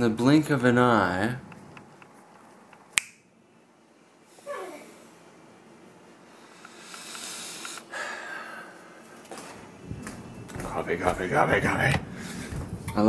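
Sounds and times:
sharp click: 0:02.7 - 0:03.2
man breathing and sniffing: 0:06.2 - 0:09.4, 0:12.1 - 0:12.8.

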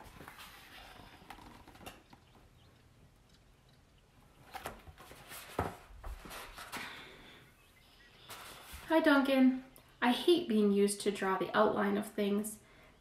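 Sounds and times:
paper rustling: 0:00.0 - 0:02.0, 0:04.5 - 0:07.0, 0:08.2 - 0:08.9.

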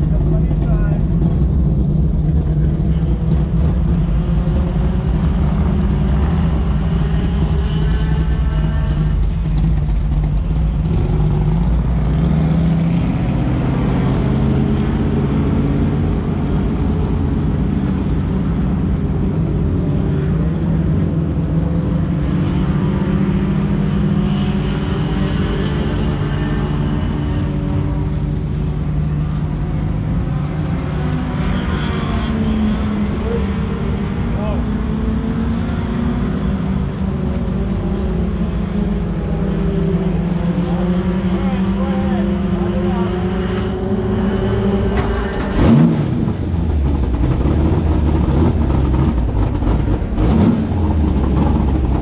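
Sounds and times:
race car engine idling: 0:00.0 - 0:22.0, 0:26.5 - 0:30.7, 0:45.3 - 0:52.0
engine revving: 0:00.0 - 0:52.0.

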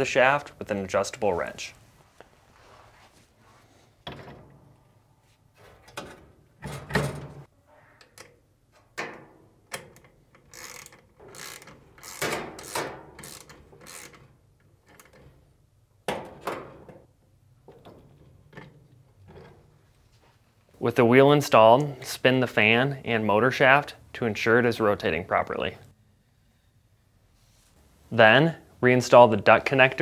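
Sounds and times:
socket ratchet clicking: 0:09.8 - 0:14.3.

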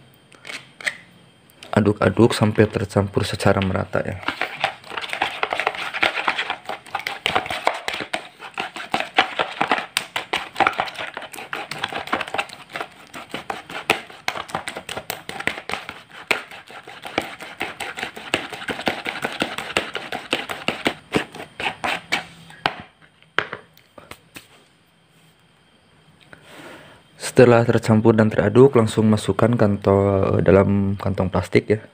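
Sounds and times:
hand squelching food in bowl: 0:04.1 - 0:22.3.

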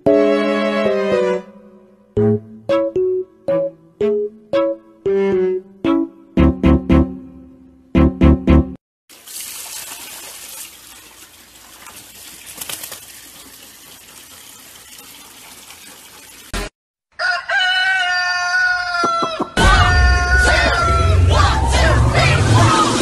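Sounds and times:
tap water splashing into bucket: 0:09.1 - 0:16.7.

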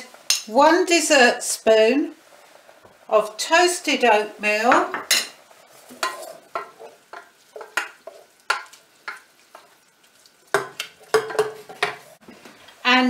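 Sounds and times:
wooden spoon scraping a saucepan: 0:04.8 - 0:12.2.

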